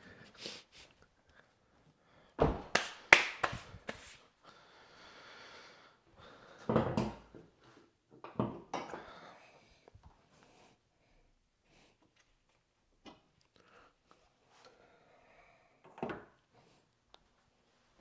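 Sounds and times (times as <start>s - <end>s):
objects clunking and knocking: 6.6s - 7.5s, 8.1s - 9.1s.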